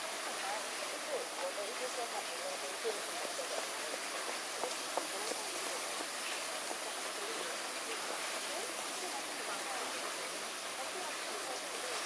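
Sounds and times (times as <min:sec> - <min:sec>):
running water: 0:00.0 - 0:12.0.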